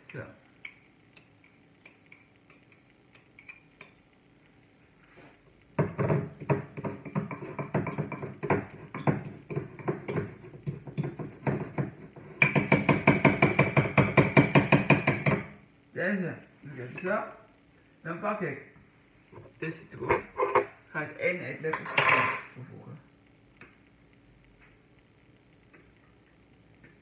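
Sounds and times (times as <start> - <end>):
fork mashing butter in a bowl: 6.4 - 11.6.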